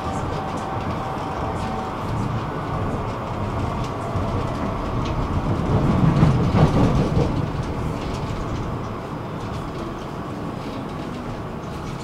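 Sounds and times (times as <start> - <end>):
tram wheels and motor rumbling: 0.0 - 12.0.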